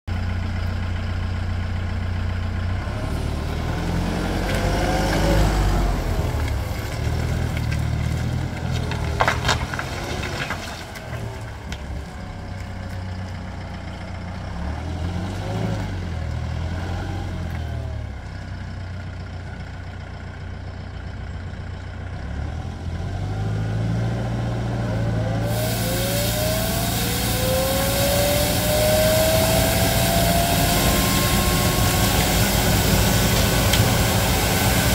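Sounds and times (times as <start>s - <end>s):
street sweeper diesel engine: 0.1s - 34.9s
rising whine: 25.2s - 34.9s
hiss: 25.4s - 34.9s.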